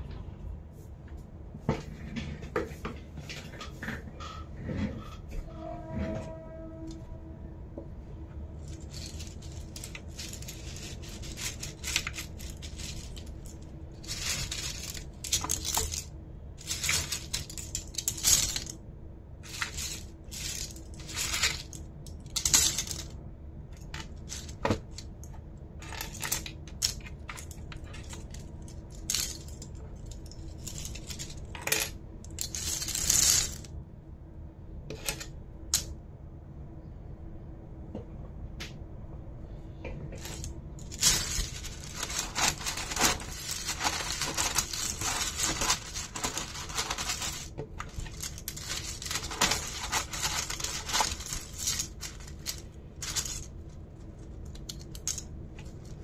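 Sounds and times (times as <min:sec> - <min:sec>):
short rattling scrapes: 0:40.2 - 0:53.5.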